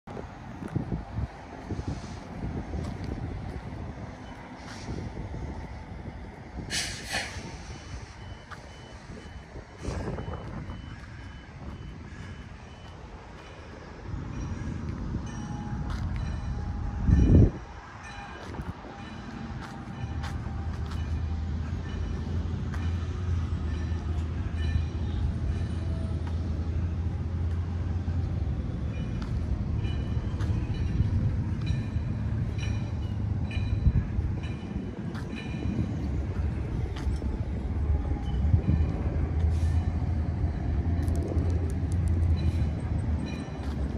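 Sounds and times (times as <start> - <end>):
reversing beeper: 7.9 - 17.5.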